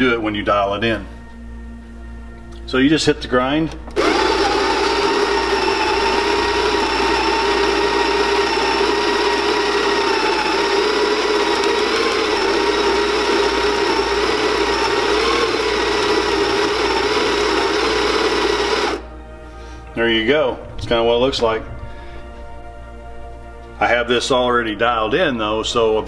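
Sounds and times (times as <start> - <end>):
electric coffee grinder running: 4.0 - 19.1.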